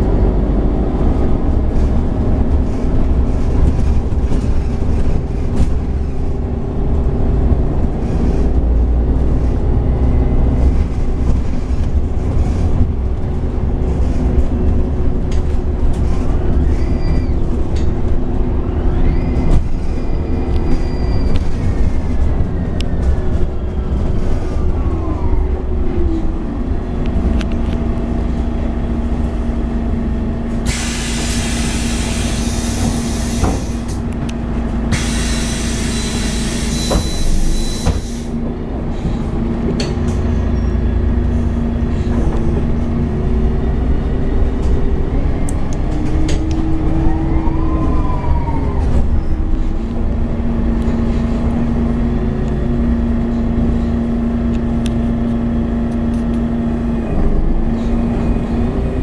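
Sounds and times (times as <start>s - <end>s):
bus drivetrain whine: 0.0s - 59.0s
bus engine tone: 0.0s - 59.0s
compressed air hissing: 30.7s - 33.9s, 34.9s - 38.3s.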